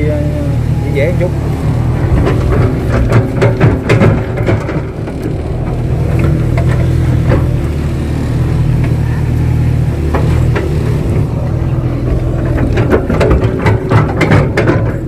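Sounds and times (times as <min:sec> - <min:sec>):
excavator diesel engine: 0:00.0 - 0:15.0
bucket clanks and knocks: 0:02.0 - 0:07.6, 0:12.0 - 0:15.0.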